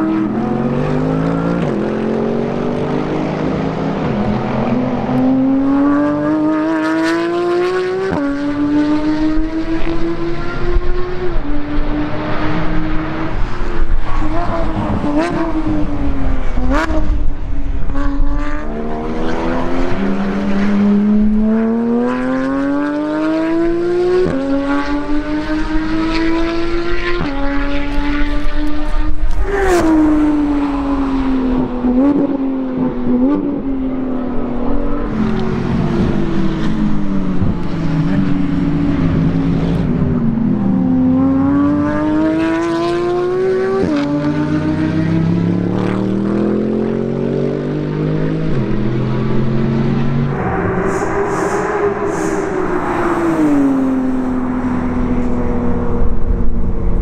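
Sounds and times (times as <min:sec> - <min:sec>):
race car accelerating past: 0:00.0 - 0:57.0
sports car accelerating past: 0:00.0 - 0:57.0.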